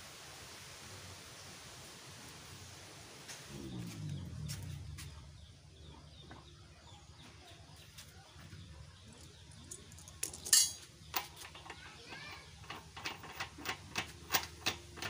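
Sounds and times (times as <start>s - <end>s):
faint low hum: 2.3s - 15.0s
metal rattle: 9.6s - 15.0s
sharp metal clinks: 9.7s - 11.2s.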